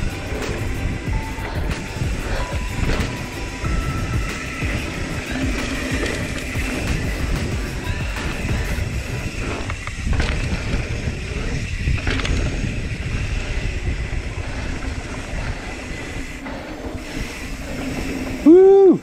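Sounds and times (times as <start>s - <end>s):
bike knocking and rattling: 0.0s - 19.0s
bike tyres rumbling on dirt: 0.0s - 19.0s
wind on microphone: 0.0s - 19.0s.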